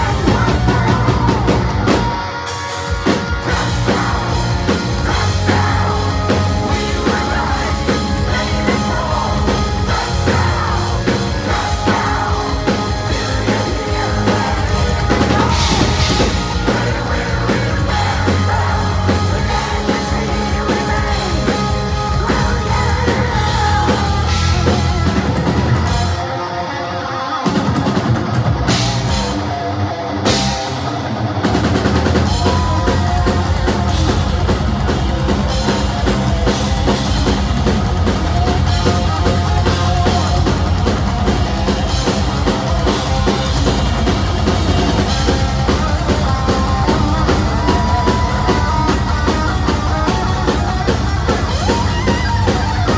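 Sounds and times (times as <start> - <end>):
person singing: 0.0 - 25.2, 45.2 - 52.9
heavy metal band playing live: 0.0 - 52.9.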